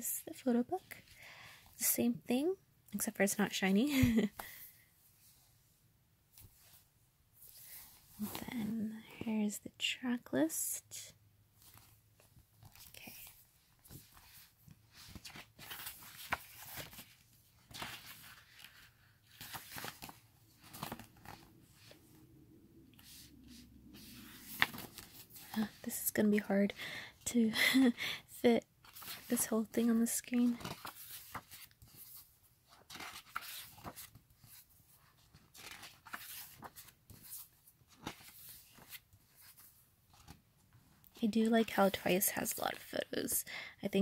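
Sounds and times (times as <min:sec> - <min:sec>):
paper pages rustling: 0:11.6 - 0:22.2, 0:22.9 - 0:26.4, 0:28.8 - 0:40.4.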